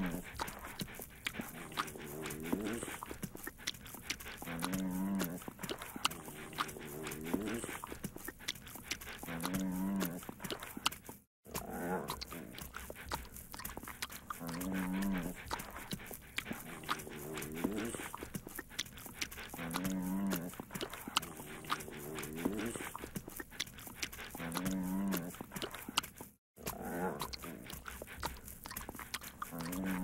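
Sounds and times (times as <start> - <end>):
dog moaning calls: 0.0 - 8.0, 14.3 - 25.6
wet licking clicks: 0.0 - 30.0.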